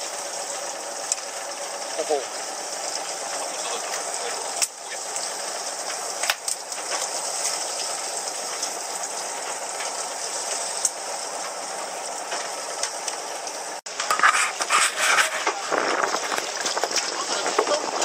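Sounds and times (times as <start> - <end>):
wind: 0.0 - 18.0.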